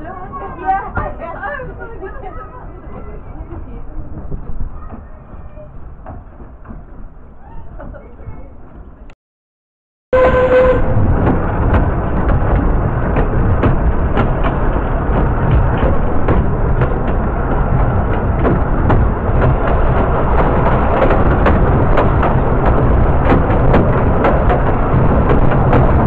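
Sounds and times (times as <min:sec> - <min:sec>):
railway carriage rumbling: 0:00.0 - 0:09.2, 0:10.1 - 0:26.0
wheels clicking over rail joints: 0:00.0 - 0:09.2, 0:10.2 - 0:26.0.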